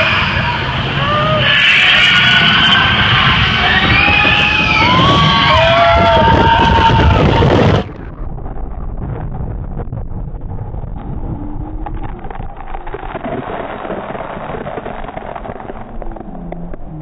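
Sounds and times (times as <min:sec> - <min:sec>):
wind buffeting microphone: 0:02.2 - 0:15.9.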